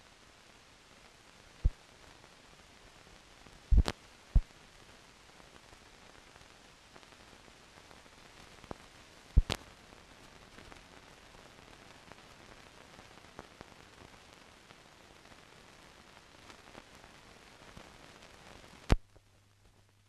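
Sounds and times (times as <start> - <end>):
film soundtrack hiss: 0.0 - 20.0
sharp clicks and pops: 3.7 - 4.5, 9.4 - 9.7, 18.8 - 19.3.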